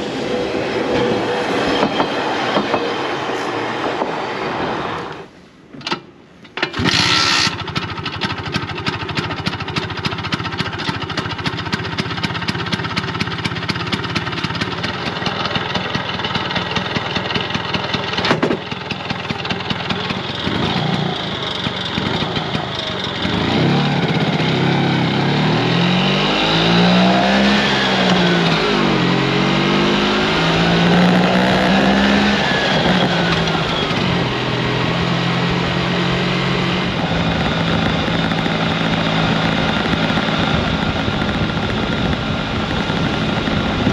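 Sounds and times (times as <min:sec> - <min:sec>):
scooter engine starting and idling: 0:05.8 - 0:25.9, 0:29.8 - 0:36.0, 0:36.8 - 0:43.9
scooter pulling away revving: 0:06.8 - 0:43.9.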